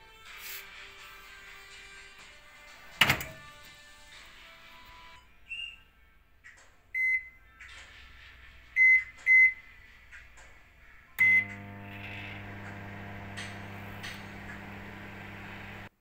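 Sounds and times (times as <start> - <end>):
microwave keypad beeps: 7.0 - 7.4, 8.8 - 9.6, 11.2 - 11.6
microwave oven humming: 11.2 - 15.9.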